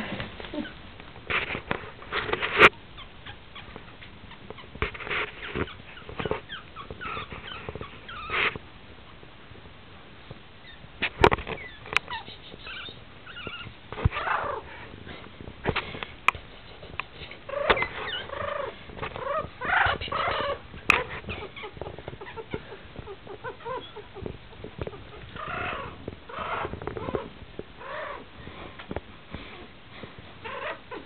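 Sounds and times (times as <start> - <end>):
soft rustling: 0.0 - 8.7
puppies squeaking and whimpering: 2.6 - 8.6, 10.6 - 14.6, 16.8 - 28.2, 30.4 - 31.0.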